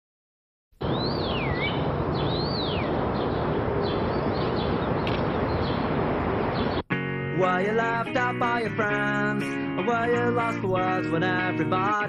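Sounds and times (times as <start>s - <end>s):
steady rushing noise: 0.8s - 6.8s
bird whistling call: 0.9s - 2.9s.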